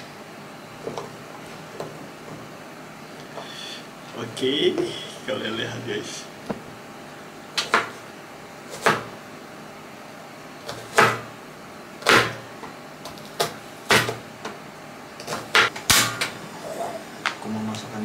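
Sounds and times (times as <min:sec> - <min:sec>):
knife chopping on plastic cutting board: 0:07.6 - 0:08.0, 0:08.7 - 0:09.1, 0:10.7 - 0:11.3, 0:12.0 - 0:12.4, 0:13.1 - 0:14.2.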